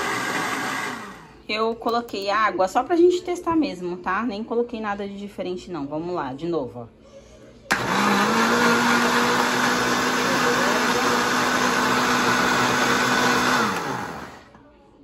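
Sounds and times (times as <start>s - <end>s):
blender motor running: 0.0s - 1.3s, 7.7s - 14.5s.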